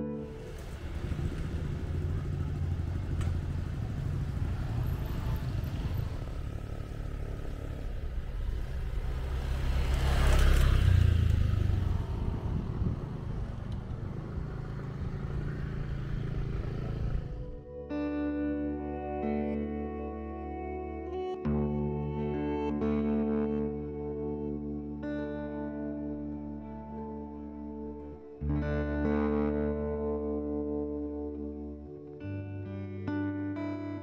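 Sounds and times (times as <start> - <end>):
road and wind noise: 0.0 - 17.8
motorcycle engine rumble: 0.1 - 17.7.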